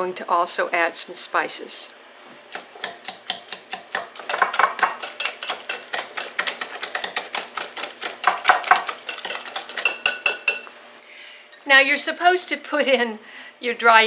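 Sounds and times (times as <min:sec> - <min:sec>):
whisk clicking against glass bowl: 0:02.5 - 0:10.7.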